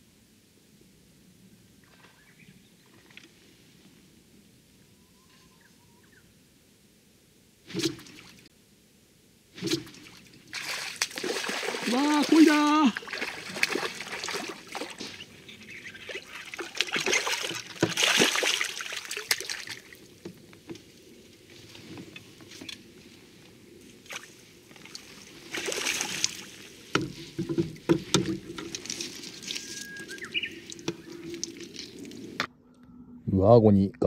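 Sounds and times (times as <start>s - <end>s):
fish splashing and thrashing: 9.6s - 20.3s, 24.1s - 32.4s
water sloshing: 9.6s - 21.0s, 24.0s - 32.4s.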